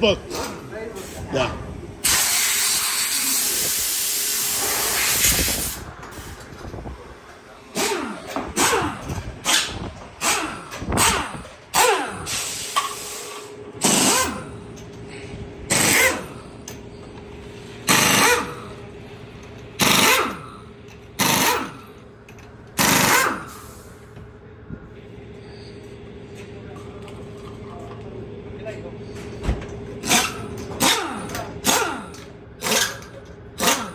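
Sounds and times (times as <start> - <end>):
pneumatic impact wrench bursts: 2.0 - 6.4, 7.7 - 17.1, 17.8 - 18.9, 19.7 - 24.1, 30.0 - 33.9.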